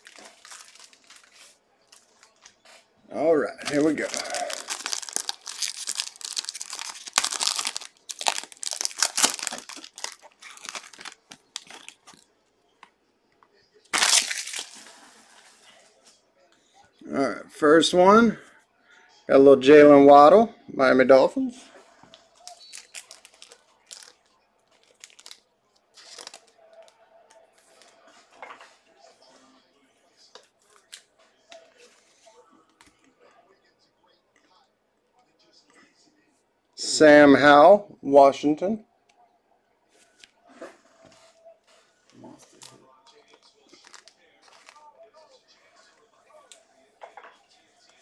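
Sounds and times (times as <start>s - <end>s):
trading cards rustling: 0.0s - 2.5s, 3.5s - 12.2s, 13.9s - 15.2s, 22.3s - 25.4s, 26.0s - 26.9s, 43.4s - 44.9s
foil pack tearing and crinkling: 3.6s - 12.2s, 13.9s - 15.0s, 22.4s - 24.2s, 24.8s - 25.4s, 26.0s - 26.5s.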